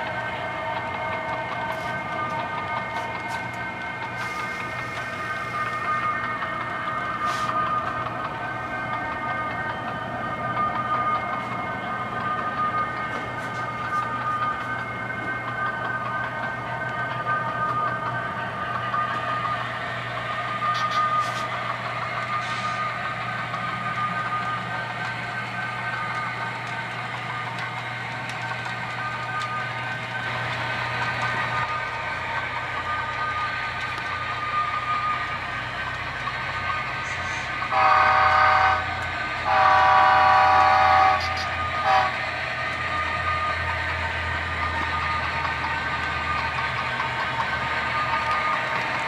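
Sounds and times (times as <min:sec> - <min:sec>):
model diesel engine hum: 0:00.0 - 0:49.0
model locomotive horn blasts: 0:37.0 - 0:42.3.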